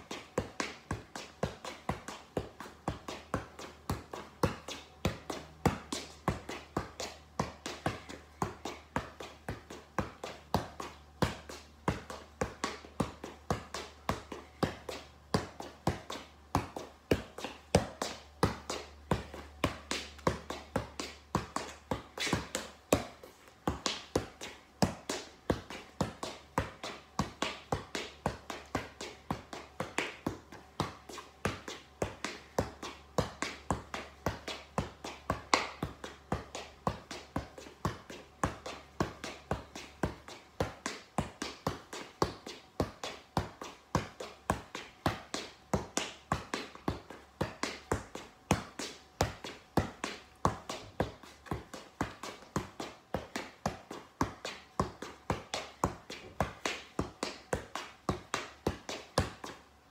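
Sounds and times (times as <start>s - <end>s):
football being kicked: 0.1s - 59.5s.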